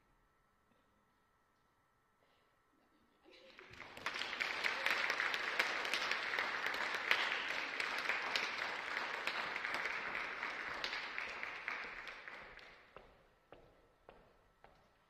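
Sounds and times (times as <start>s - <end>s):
audience applauding: 3.5s - 12.9s.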